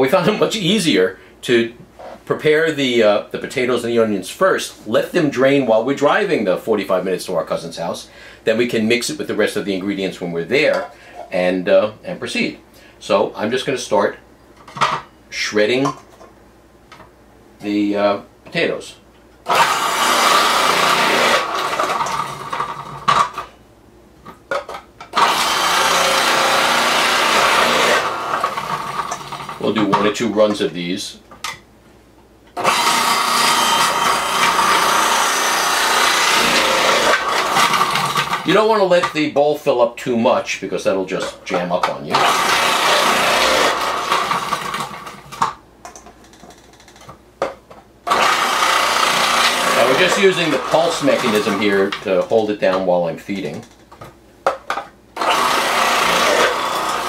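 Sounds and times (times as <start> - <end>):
food processor grating: 19.5 - 23.3, 25.2 - 29.6, 32.6 - 38.4, 42.1 - 45.4, 48.1 - 51.8, 55.2 - 57.0.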